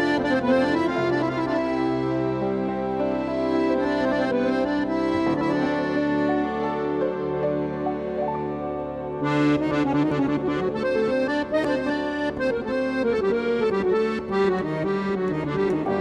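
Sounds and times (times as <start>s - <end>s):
background music: 0.0s - 16.0s.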